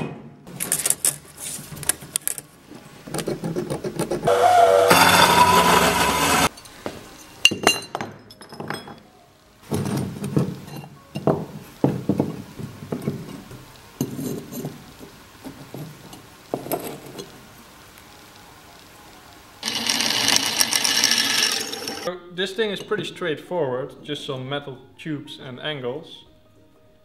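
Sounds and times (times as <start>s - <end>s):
loud harsh noise: 4.3s - 6.5s, 19.6s - 22.1s
steel pieces clinking and knocking: 6.5s - 9.1s, 19.6s - 22.1s.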